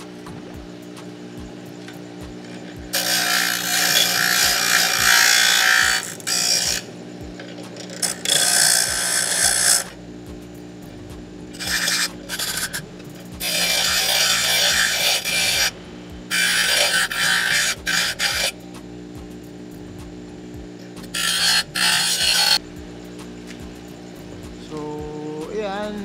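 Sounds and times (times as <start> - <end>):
bench grinder motor hum: 0.0 - 24.6
steel grinding on wheel: 1.3 - 18.8, 19.8 - 22.6.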